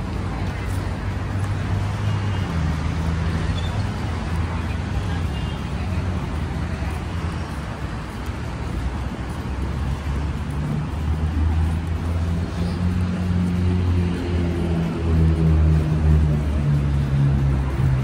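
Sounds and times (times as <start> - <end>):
hum of road traffic: 0.0 - 18.0.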